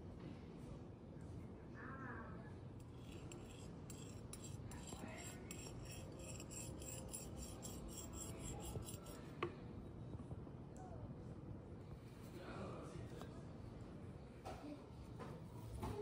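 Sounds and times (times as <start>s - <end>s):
skewer scraping ceramic plate: 2.8s - 9.3s.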